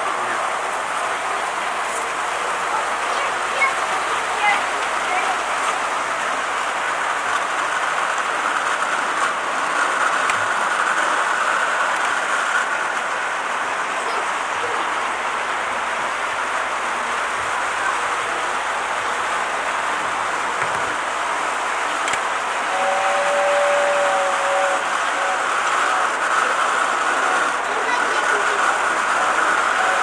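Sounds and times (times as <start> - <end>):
toy train motors whirring: 1.2 - 6.4, 21.9 - 30.0.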